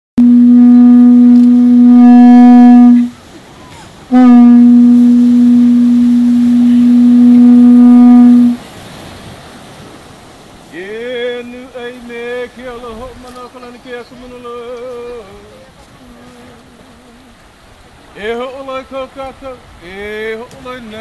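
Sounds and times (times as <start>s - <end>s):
conch shell horn blasts: 0.2s - 3.2s, 4.1s - 8.6s.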